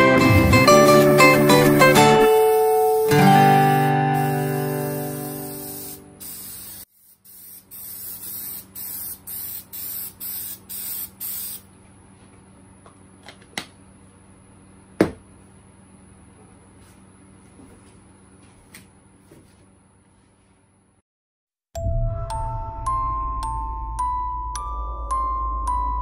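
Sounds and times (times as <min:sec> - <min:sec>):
aerosol can spraying bursts: 0:01.9 - 0:11.6.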